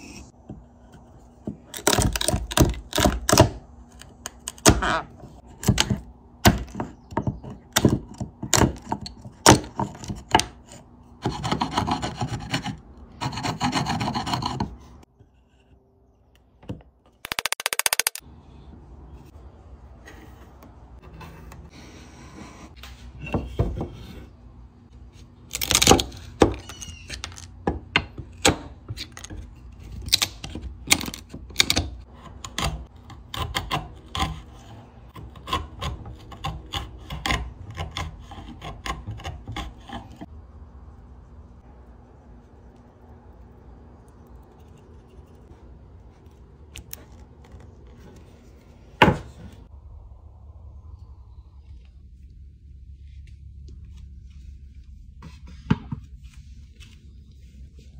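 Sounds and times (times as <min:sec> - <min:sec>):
chisel scraping wood: 0:09.7 - 0:15.8, 0:32.2 - 0:40.3.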